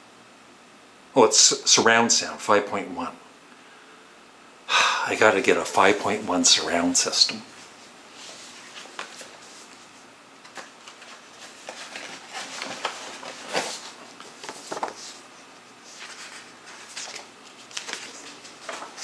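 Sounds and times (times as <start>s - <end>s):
package rustling and tapping: 10.4s - 15.1s.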